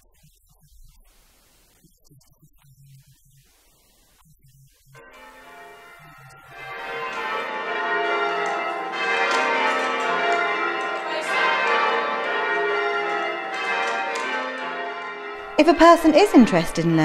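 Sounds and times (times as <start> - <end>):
large church bells ringing: 5.1 - 17.0.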